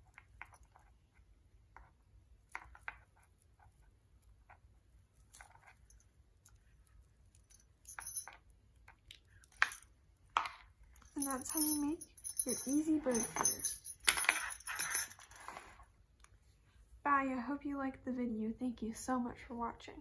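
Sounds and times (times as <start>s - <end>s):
twine rustling: 10.9s - 15.8s.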